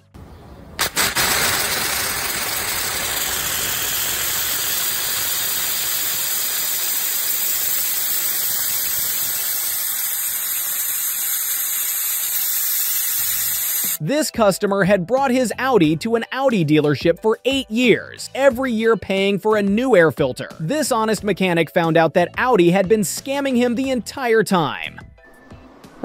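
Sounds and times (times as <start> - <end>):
air blow gun hissing: 0.8 - 14.0.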